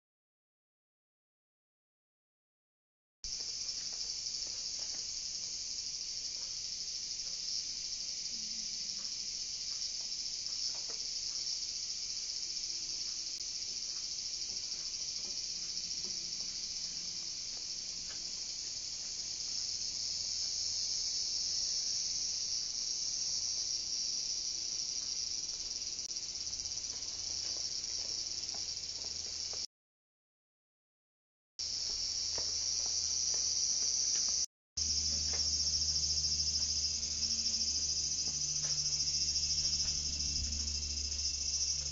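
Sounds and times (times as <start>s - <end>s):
insect chorus: 3.3s - 29.7s, 31.6s - 41.9s.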